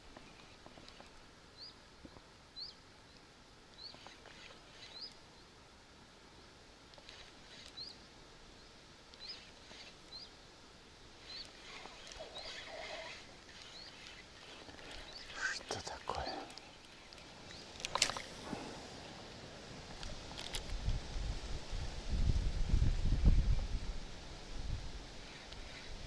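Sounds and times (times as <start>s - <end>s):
small bird chirping: 0.2s - 5.5s, 7.0s - 10.4s, 11.2s - 18.3s
faint rustling: 11.1s - 21.0s.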